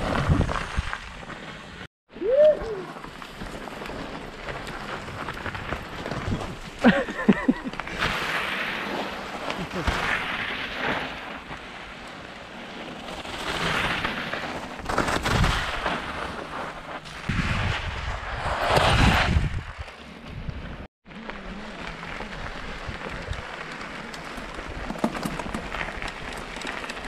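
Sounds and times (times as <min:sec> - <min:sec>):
bike tyres skidding on cinder: 0:00.0 - 0:27.0.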